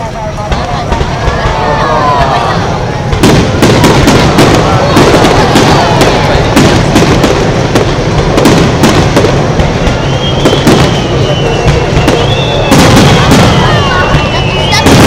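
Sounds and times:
fireworks bangs and crackling: 0.0 - 15.0
high wavering firework whistles: 9.2 - 15.0.

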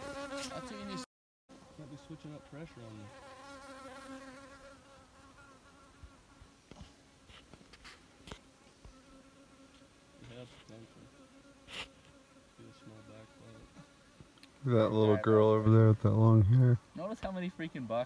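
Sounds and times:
flying insect buzzing: 0.0 - 14.4.

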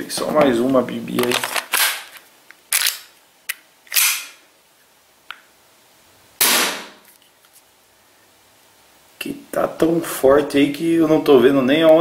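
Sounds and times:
airsoft pistol shots: 6.4 - 7.0.

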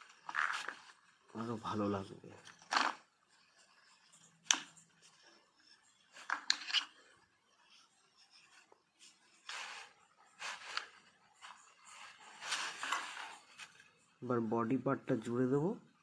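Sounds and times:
loop tool scraping clay: 0.0 - 1.6, 2.4 - 14.0.

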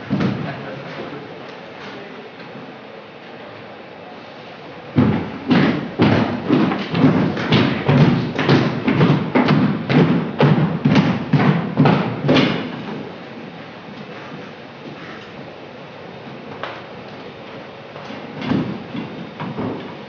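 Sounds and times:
loud thumps: 4.9 - 12.8.

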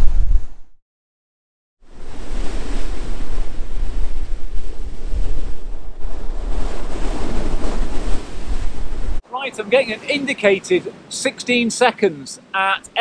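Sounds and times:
wind buffeting microphone: 1.9 - 9.2.

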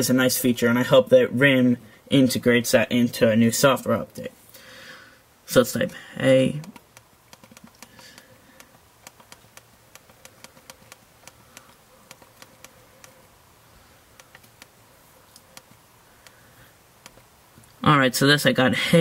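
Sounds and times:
faint steady hum: 0.0 - 19.0
faint touchscreen clicks: 6.6 - 13.4, 14.1 - 16.4.

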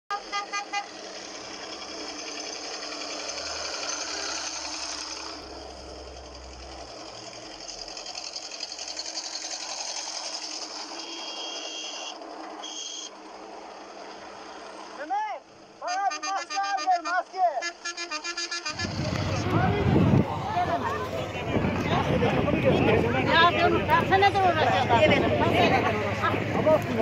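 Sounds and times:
tractor engines clattering: 0.1 - 27.0.

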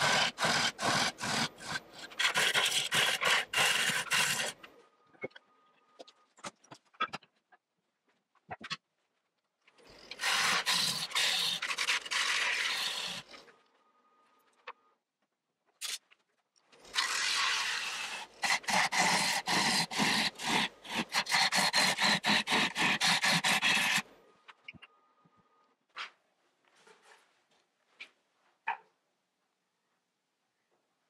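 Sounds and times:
lathe gouge cutting wood: 0.0 - 4.6, 10.2 - 13.4, 17.0 - 24.0.

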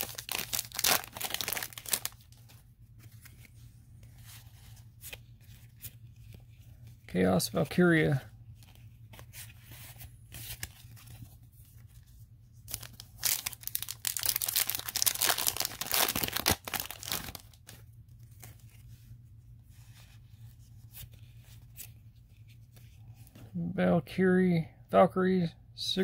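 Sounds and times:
foil pack tearing and crinkling: 0.0 - 2.3, 12.7 - 17.7.

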